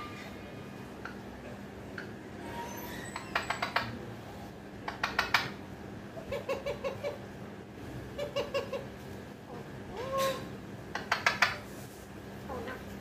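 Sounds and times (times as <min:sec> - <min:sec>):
parakeet chattering: 0:04.8 - 0:05.6.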